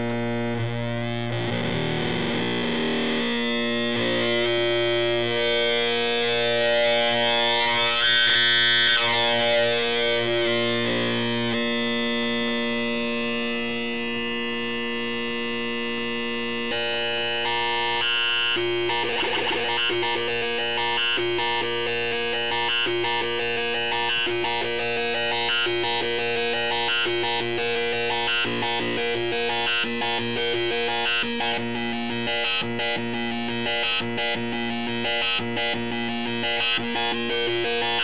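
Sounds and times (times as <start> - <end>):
buzzy synth tone: 0.0 - 13.9, 16.6 - 31.6.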